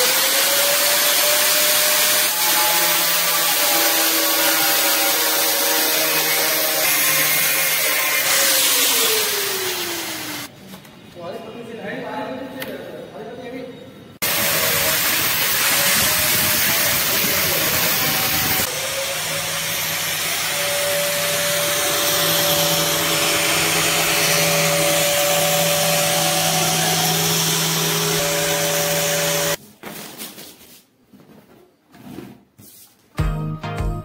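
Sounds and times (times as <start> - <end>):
angle grinder cutting plastic: 0.0 - 10.5, 14.2 - 29.6.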